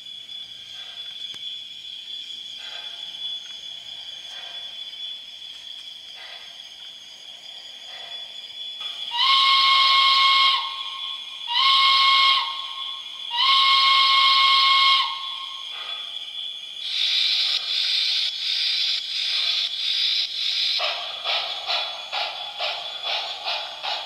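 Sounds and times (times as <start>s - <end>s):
pulsing steam hiss: 0.0s - 24.0s
model locomotive steam whistle: 8.8s - 15.9s.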